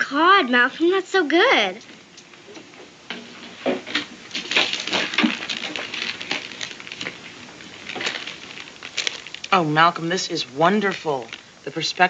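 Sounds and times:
small objects clinking and scraping: 3.1 - 12.0.

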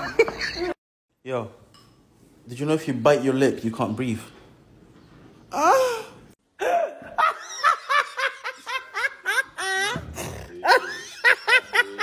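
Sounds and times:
man laughing hard: 6.6 - 12.0.

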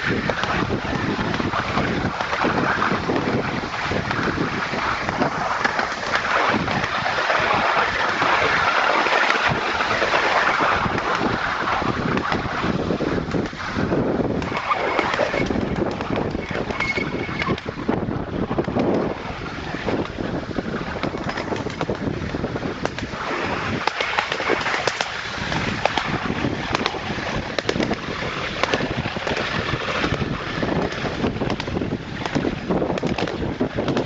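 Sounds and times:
wheels rattling along rails: 0.0 - 34.0
wind buffeting microphone: 0.0 - 34.0
sharp clicks and knocks: 13.2 - 13.6, 20.9 - 23.1, 23.8 - 28.0, 28.6 - 34.0.

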